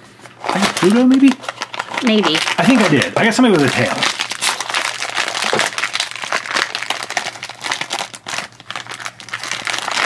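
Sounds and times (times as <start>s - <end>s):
foil bag crinkling: 0.2s - 10.0s.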